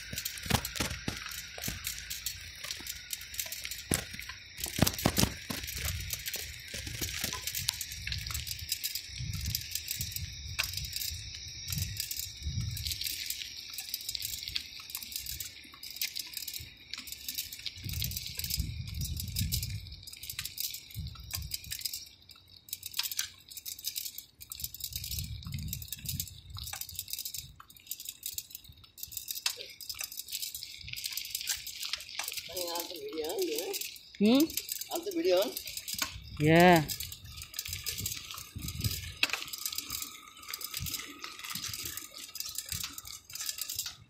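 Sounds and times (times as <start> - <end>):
wind rumbling on microphone: 0.0 - 13.3, 17.5 - 21.9, 24.5 - 27.6, 35.5 - 44.0
camera handling rattling: 0.0 - 32.7, 33.4 - 44.0.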